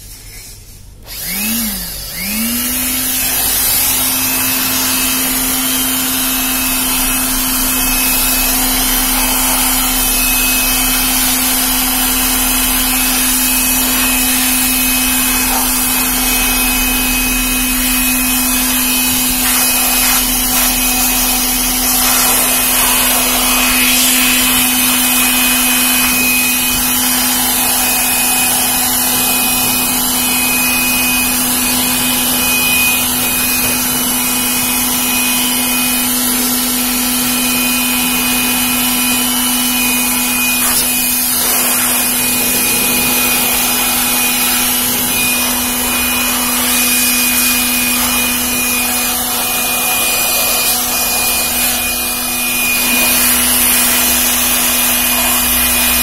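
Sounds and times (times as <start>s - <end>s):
electric blower running: 0.8s - 56.0s
air rushing from nozzle: 6.5s - 31.1s, 39.8s - 56.0s.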